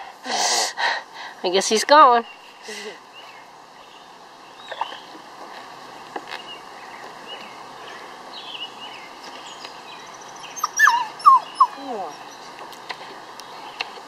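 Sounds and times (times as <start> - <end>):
puppy whining: 10.5 - 12.5.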